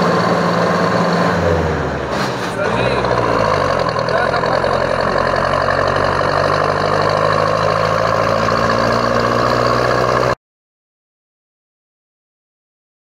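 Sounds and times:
tyre road noise: 0.0 - 10.4
vehicle engine drone: 0.0 - 10.4.

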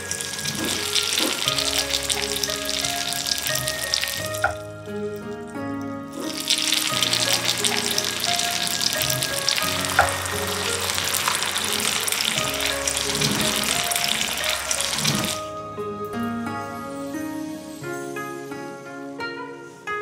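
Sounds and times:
deep-frying crackling sizzle: 0.0 - 15.5.

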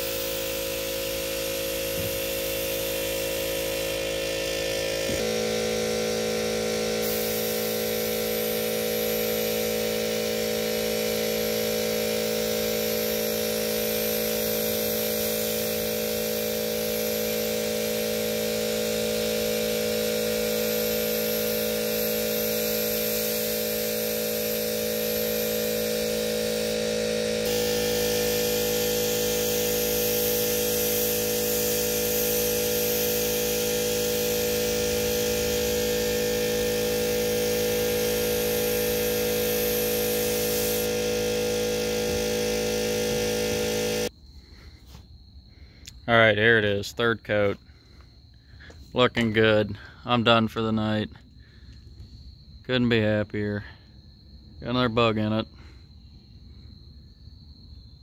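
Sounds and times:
spray gun air hissing: 0.0 - 44.1
air compressor humming: 0.0 - 46.0.

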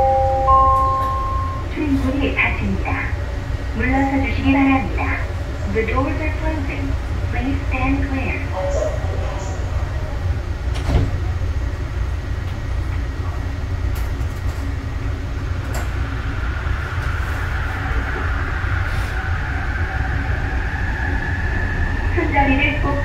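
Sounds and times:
train running rumble: 0.0 - 23.0
train drive whine rising in pitch: 15.6 - 23.0.

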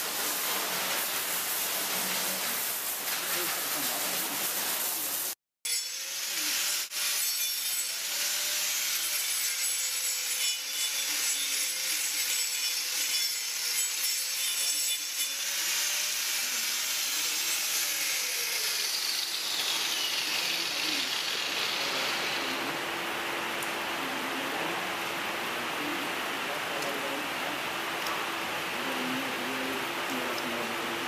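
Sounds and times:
power tool grinding hoof: 5.7 - 22.7.

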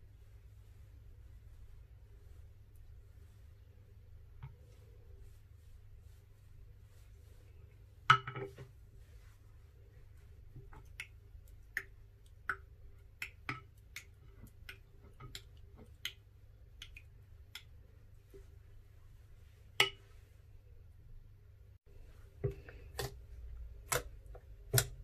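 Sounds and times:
slime stirring: 8.7 - 20.3, 21.9 - 25.0.

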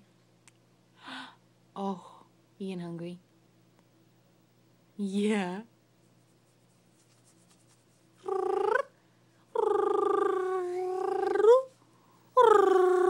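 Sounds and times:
baby cooing: 8.2 - 9.0, 9.6 - 11.7, 12.4 - 13.0.

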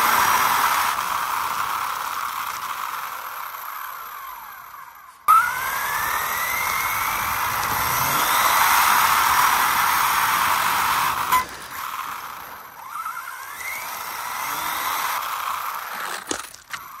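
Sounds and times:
toy car motor whining: 0.0 - 17.0.

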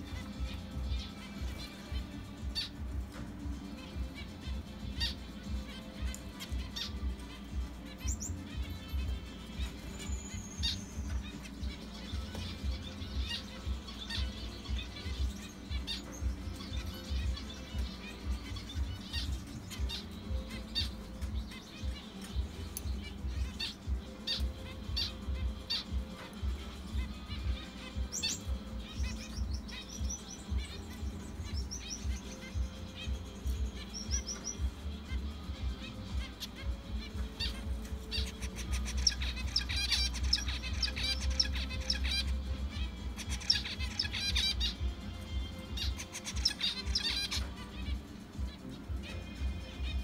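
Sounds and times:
finches chirping: 0.0 - 50.0
music with low beat: 0.0 - 50.0.

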